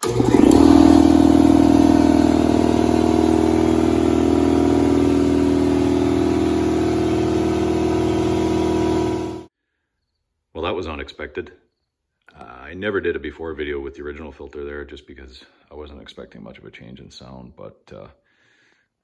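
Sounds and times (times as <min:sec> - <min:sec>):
air compressor pump running: 0:00.0 - 0:09.5.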